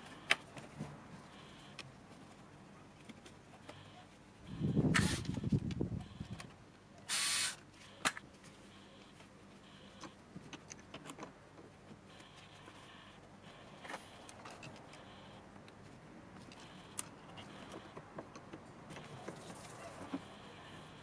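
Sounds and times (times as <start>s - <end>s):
brief rasping hiss: 7.1s - 7.6s.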